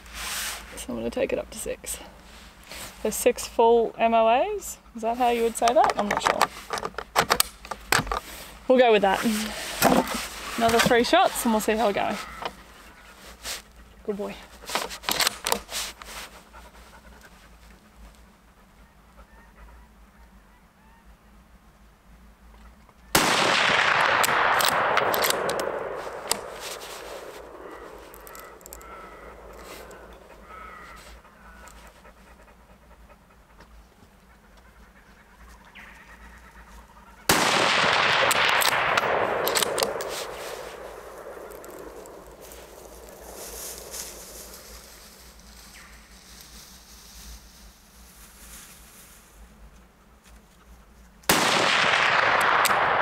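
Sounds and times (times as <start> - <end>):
dog panting: 11.2 - 20.0, 29.6 - 37.3
rifle shot: 23.1 - 29.5, 37.3 - 42.4, 51.3 - 53.0
rifle bolt clicks: 23.8 - 26.5, 38.2 - 40.1.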